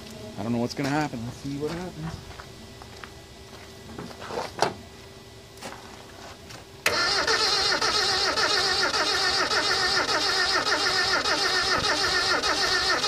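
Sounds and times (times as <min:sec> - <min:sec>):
engine cranked by starter: 0:06.8 - 0:13.0.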